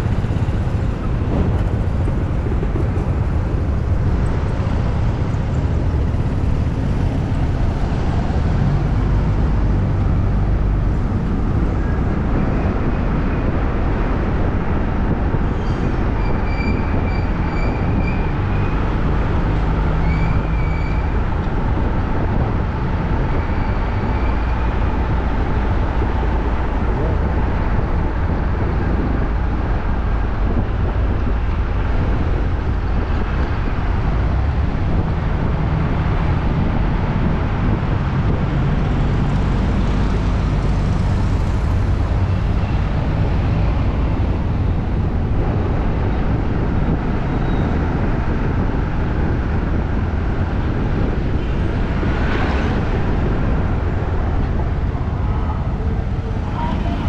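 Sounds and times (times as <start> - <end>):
passing traffic: 0.0 - 57.0
voices: 55.2 - 57.0.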